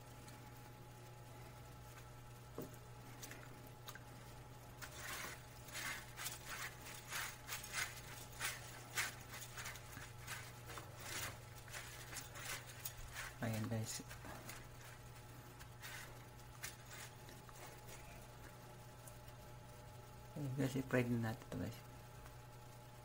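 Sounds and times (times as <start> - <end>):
low hum: 0.0 - 20.6
breadcrumbs scraping and rustling: 4.4 - 19.2.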